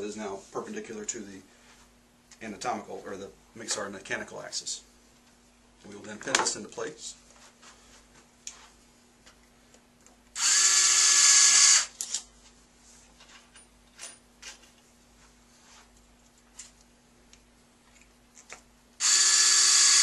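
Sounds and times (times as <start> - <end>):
power drill running: 10.4 - 12.0, 19.0 - 20.0.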